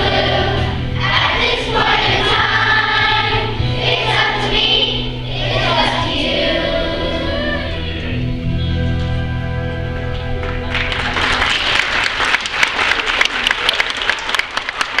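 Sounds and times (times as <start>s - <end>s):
audience applauding: 10.4s - 15.0s.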